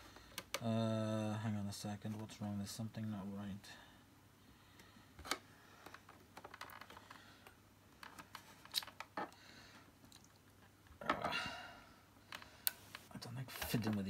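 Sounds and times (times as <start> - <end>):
plastic parts clicking and scraping: 5.2 - 9.4.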